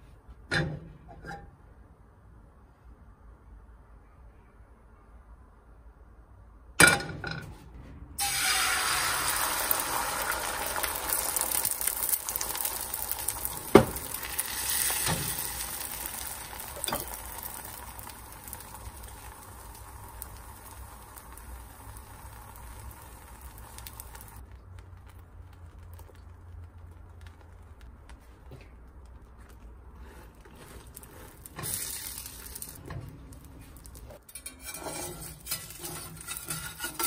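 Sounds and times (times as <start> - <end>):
food sizzling in frying pan: 8.2 - 24.5, 31.5 - 32.8, 35.2 - 37.0.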